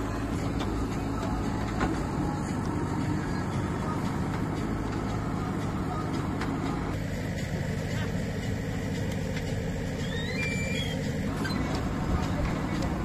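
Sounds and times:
diesel engine rumbling: 0.0s - 13.0s
high chirps: 10.0s - 11.1s.

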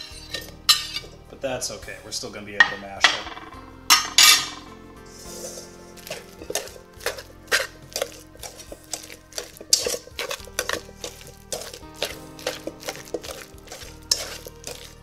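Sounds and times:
whisk clicking in metal bowl: 6.0s - 15.0s.

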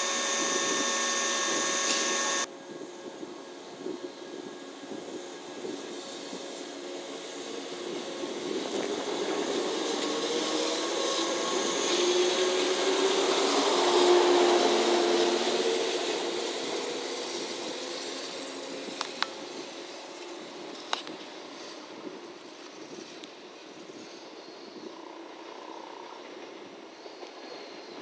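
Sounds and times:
electrical hum: 0.0s - 2.5s
train wheels on rails: 0.0s - 28.0s.

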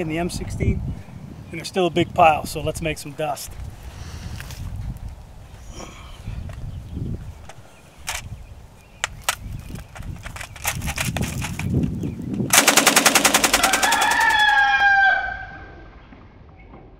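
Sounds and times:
machine gun burst: 12.5s - 14.6s
drawn-out pitched call: 13.6s - 15.7s.

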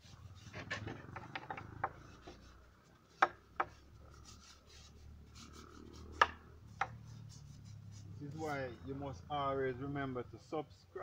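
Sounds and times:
wood-on-wood knocks: 0.8s - 2.0s, 3.2s - 3.8s
brush scrubbing on wood: 3.6s - 9.0s.

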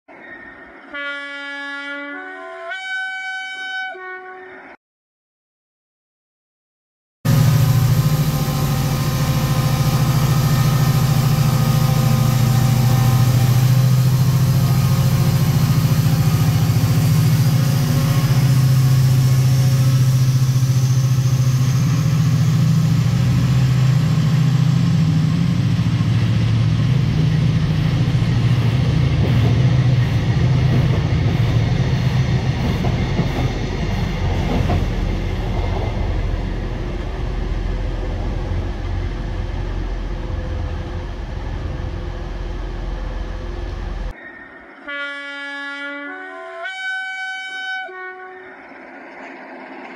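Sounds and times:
high whine: 7.3s - 45.4s
diesel locomotive engine drone: 7.3s - 49.9s
train coaches rolling past: 7.3s - 49.9s.

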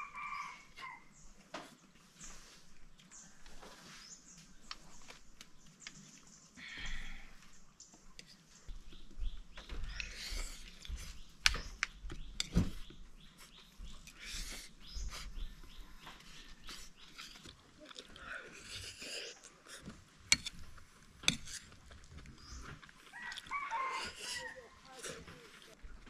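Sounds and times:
chewing: 15.9s - 25.8s.

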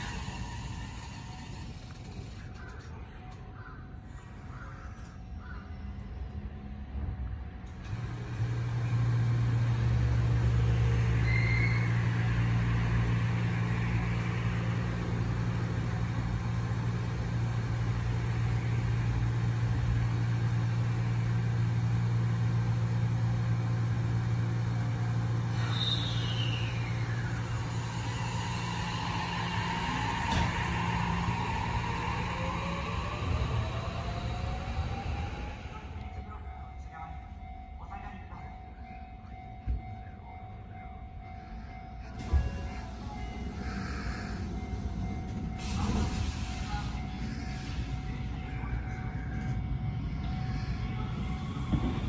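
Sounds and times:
train low hum: 0.0s - 52.0s
air brakes hissing: 25.4s - 32.8s, 43.5s - 48.0s.

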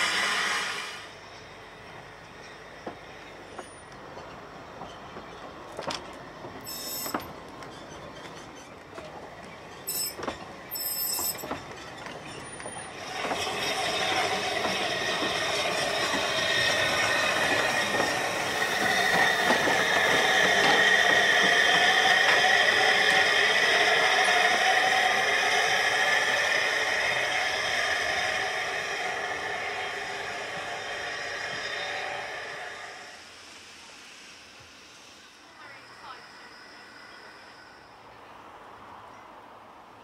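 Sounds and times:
steam hiss: 0.0s - 1.2s, 12.9s - 38.0s
wheels clicking over rail joints: 2.4s - 23.4s
wheel flange squeals: 6.6s - 33.2s, 35.4s - 38.2s.

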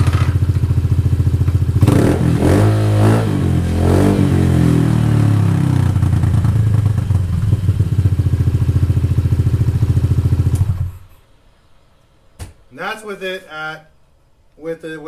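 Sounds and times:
motorcycle engine idling loudly: 0.0s - 11.0s.

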